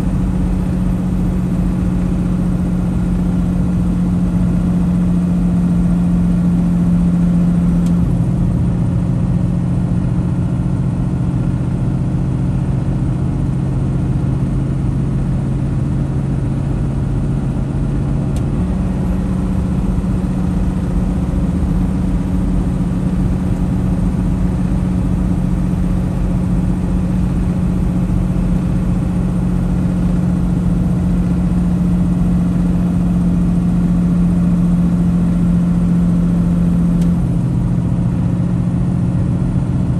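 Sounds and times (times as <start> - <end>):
truck engine drone in cab: 0.0 - 39.9
road noise: 14.5 - 39.9.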